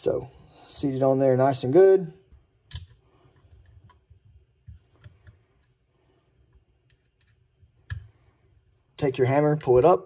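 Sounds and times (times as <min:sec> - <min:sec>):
small parts clicking and tapping: 0:02.7 - 0:05.8.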